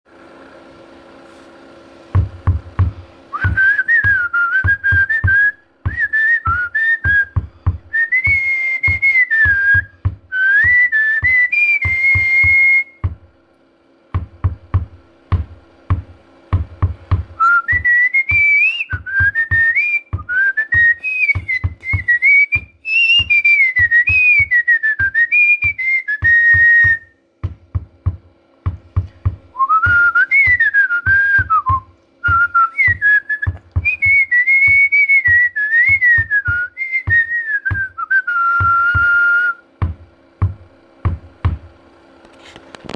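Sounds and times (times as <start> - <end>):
steady drum beat: 2.0 - 42.1
whistled melody: 3.3 - 13.0, 17.4 - 27.2, 29.5 - 39.7.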